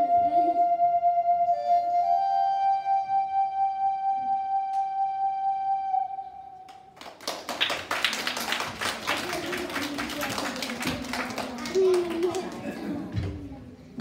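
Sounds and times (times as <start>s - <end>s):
flute holding long note: 0.0s - 6.8s
applause: 6.7s - 12.8s.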